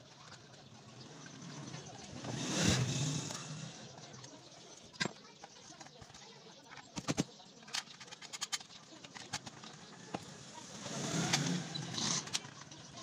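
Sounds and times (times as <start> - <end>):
rough background noise: 0.0 - 13.0
plastic and metal clicks: 4.2 - 10.3.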